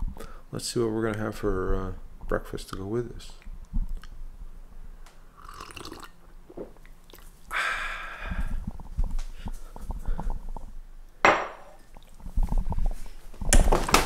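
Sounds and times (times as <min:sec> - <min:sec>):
sipping coffee: 0:05.4 - 0:07.3.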